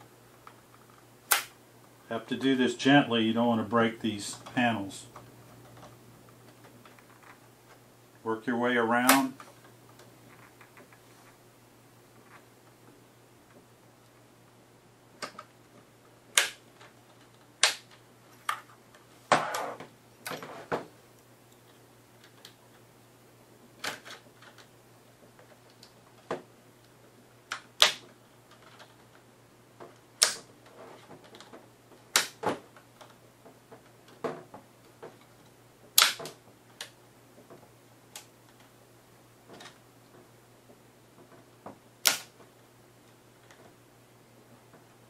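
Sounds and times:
plastic clips snapping: 1.3 - 1.6, 16.3 - 16.6, 17.2 - 18.6, 27.5 - 28.9, 30.2 - 30.5, 31.2 - 33.2, 36.0 - 37.0, 42.0 - 42.4.

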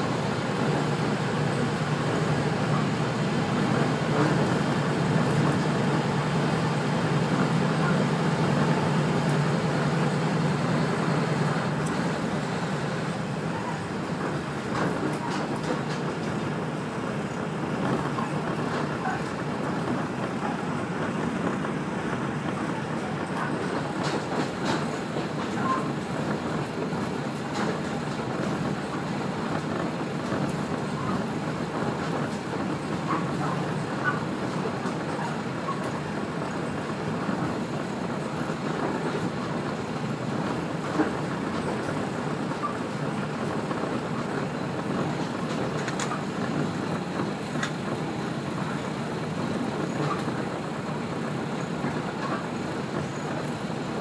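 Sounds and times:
railcar engine drone: 0.0 - 54.0
rolling rail noise: 0.0 - 54.0
light clicks from track: 45.1 - 46.3.

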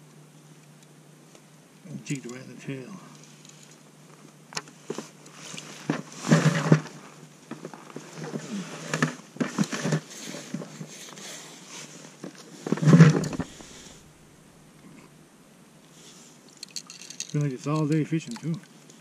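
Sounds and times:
fish handling clicks and taps: 17.7 - 18.7.

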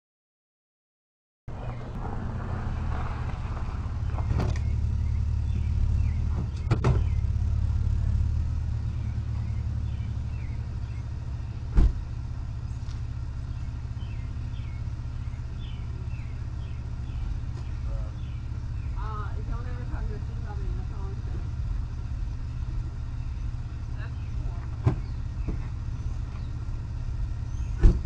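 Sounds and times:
car engine humming: 1.5 - 28.0
heavy thump: 6.3 - 7.1, 11.7 - 12.1, 24.8 - 25.8, 27.7 - 28.0.

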